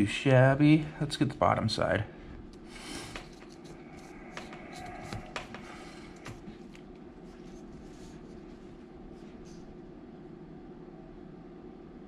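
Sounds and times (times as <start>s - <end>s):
steady low hum: 0.0s - 12.0s
light clicks and taps on desk: 4.4s - 6.9s.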